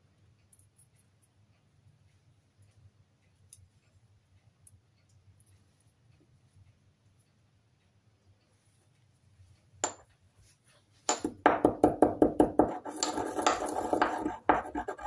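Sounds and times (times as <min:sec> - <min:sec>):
wooden pestle pounding in mortar: 0:11.1 - 0:15.0.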